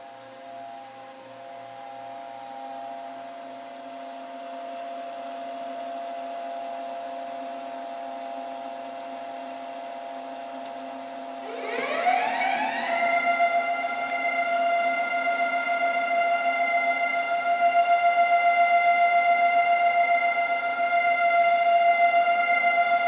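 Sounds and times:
steady hum with held tones: 0.0s - 23.0s
mixer motor whine rising: 11.2s - 23.0s.

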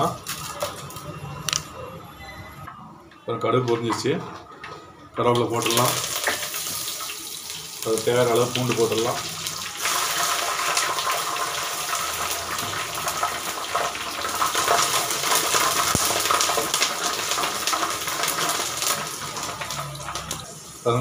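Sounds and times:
spices sizzling in oil: 5.6s - 21.0s.

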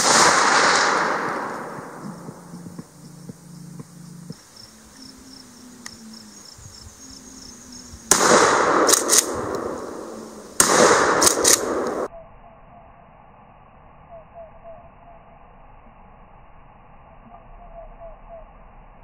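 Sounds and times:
shotgun shots: 0.0s - 2.9s, 8.1s - 12.1s
sharp cracks: 0.0s - 3.0s, 8.0s - 12.1s
faint insect chirping: 1.2s - 8.2s, 9.4s - 10.6s, 11.7s - 19.0s.

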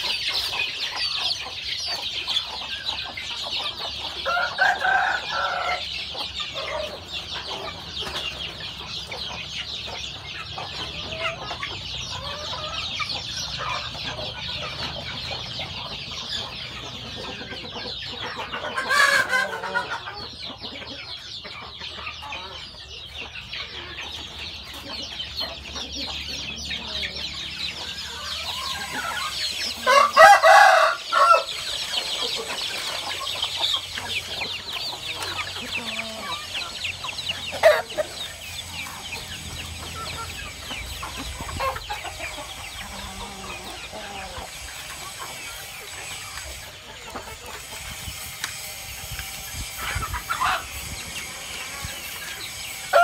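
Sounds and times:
chickens clucking: 0.0s - 53.0s
rooster crowing: 4.2s - 5.9s, 29.8s - 31.7s.

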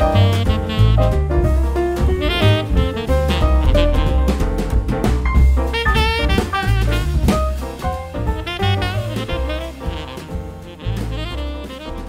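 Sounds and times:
instrumental music: 0.0s - 12.0s.

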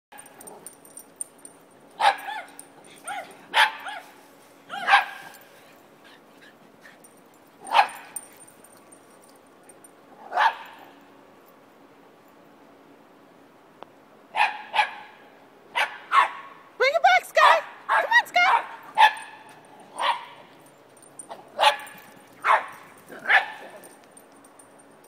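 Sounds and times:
small dogs yapping: 2.0s - 8.3s, 17.5s - 20.6s, 21.2s - 24.0s.

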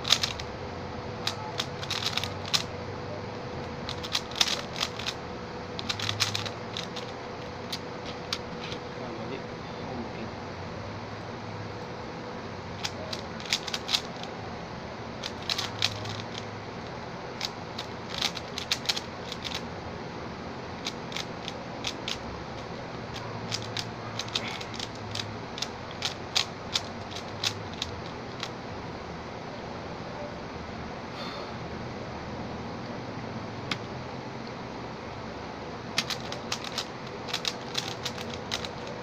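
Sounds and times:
puzzle cube plastic clicks: 0.0s - 0.5s, 1.2s - 2.7s, 3.6s - 5.2s, 5.8s - 8.8s, 12.8s - 14.3s, 15.2s - 16.4s, 17.4s - 19.6s, 20.8s - 28.6s, 36.0s - 39.0s.

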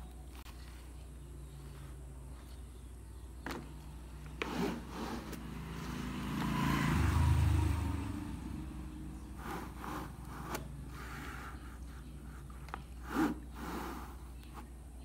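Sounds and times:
motor vehicle passing: 3.8s - 14.3s.

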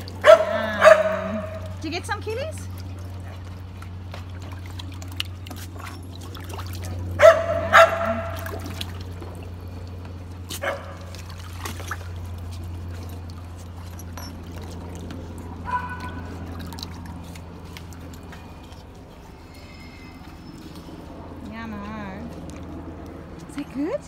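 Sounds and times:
water splashing in plastic pool: 0.0s - 24.0s
dog barking: 0.2s - 1.6s, 7.2s - 8.4s, 10.6s - 11.0s, 15.6s - 16.3s.

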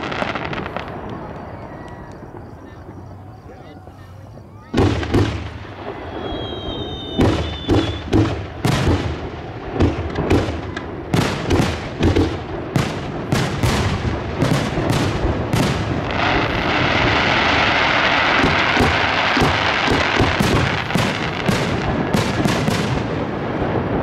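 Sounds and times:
firework whistle: 0.0s - 8.9s
firework crackle: 0.0s - 24.0s
fireworks bursting with booms: 0.0s - 24.0s.

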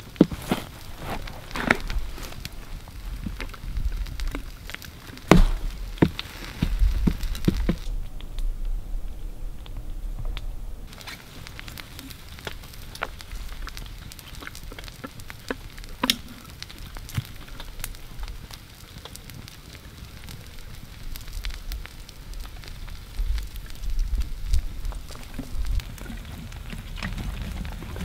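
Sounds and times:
wet crackles of peeling fat: 0.0s - 8.4s, 9.6s - 28.0s
sharp snap: 5.3s - 6.1s.

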